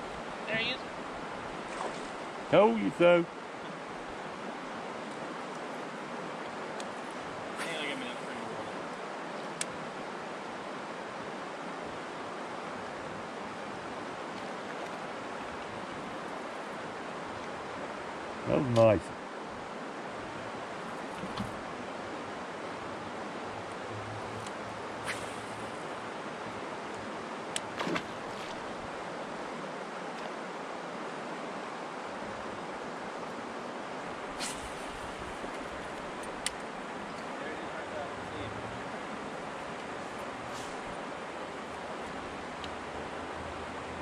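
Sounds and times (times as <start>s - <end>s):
wind and water hiss: 0.0s - 44.0s
fishing rod cast swish: 25.0s - 25.6s, 34.4s - 35.0s.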